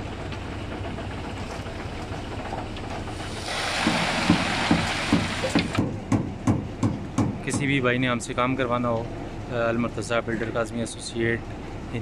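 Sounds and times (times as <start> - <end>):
engine humming: 0.0 - 6.1
rushing hiss: 3.2 - 5.8.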